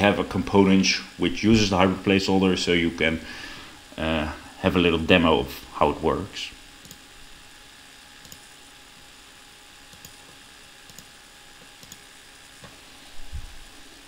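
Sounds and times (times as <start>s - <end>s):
steady low hiss: 0.0s - 14.0s
computer mouse clicks: 6.8s - 7.0s, 8.2s - 8.5s, 9.9s - 12.1s.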